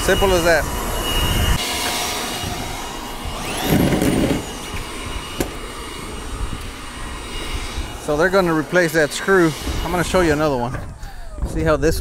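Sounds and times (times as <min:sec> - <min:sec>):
screw gun whine: 0:01.2 - 0:08.0.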